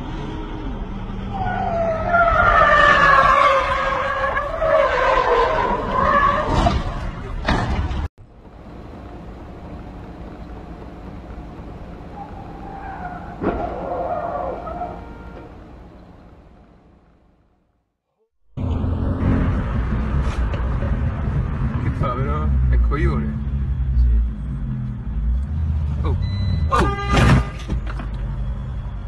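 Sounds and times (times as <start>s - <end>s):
low road noise: 0.0s - 29.0s
car tyres squealing: 1.2s - 7.4s, 12.1s - 15.6s.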